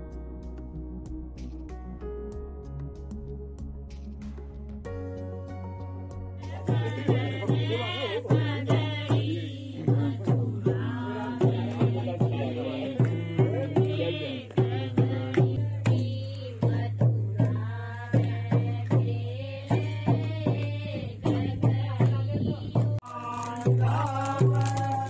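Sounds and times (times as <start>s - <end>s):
person singing chant-like melody: 6.4s - 25.0s.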